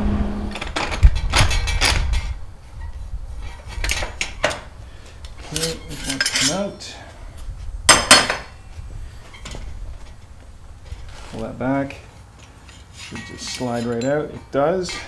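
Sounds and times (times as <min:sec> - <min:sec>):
metal parts clinking and knocking: 0:05.4 - 0:06.7, 0:12.4 - 0:15.0.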